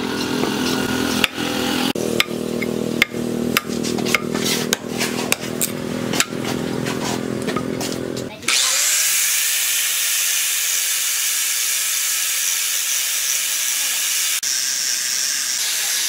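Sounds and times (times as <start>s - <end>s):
knife chopping wood: 0.2s - 8.0s.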